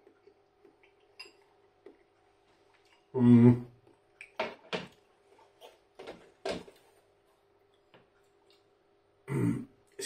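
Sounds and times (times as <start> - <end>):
quiet chewing: 0.0 - 3.1, 6.7 - 8.8.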